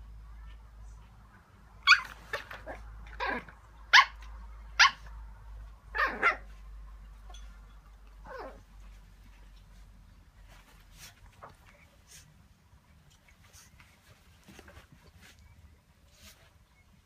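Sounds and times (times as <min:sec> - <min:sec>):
puppy barking in sharp yaps: 0:01.8 - 0:02.5, 0:03.9 - 0:05.1.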